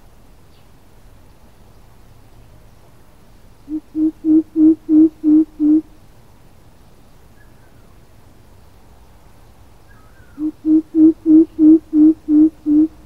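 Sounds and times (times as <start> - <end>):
coucal deep hoots: 3.7 - 5.9, 10.3 - 13.0.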